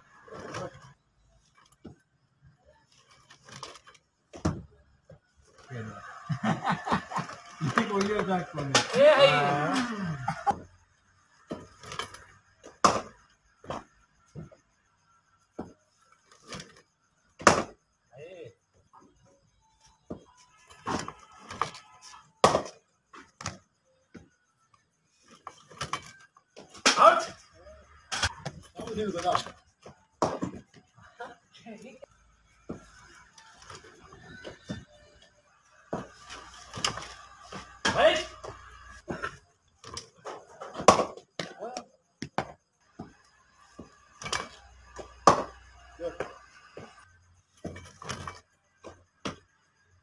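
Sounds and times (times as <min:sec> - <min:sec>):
cricket bat hitting ball: 0:04.3 - 0:04.7, 0:07.2 - 0:09.4, 0:11.5 - 0:13.9, 0:17.4 - 0:17.8, 0:20.1 - 0:21.8, 0:22.4 - 0:22.8, 0:25.8 - 0:27.4, 0:30.2 - 0:30.6, 0:35.9 - 0:43.2, 0:43.8 - 0:46.9
cricket bat striking ball: 0:04.3 - 0:04.7, 0:07.6 - 0:09.1, 0:12.7 - 0:13.9, 0:17.4 - 0:17.8, 0:22.4 - 0:22.8, 0:26.6 - 0:27.4, 0:30.2 - 0:30.6, 0:40.3 - 0:41.6, 0:43.8 - 0:46.9
players calling: 0:05.6 - 0:10.6, 0:36.0 - 0:39.4.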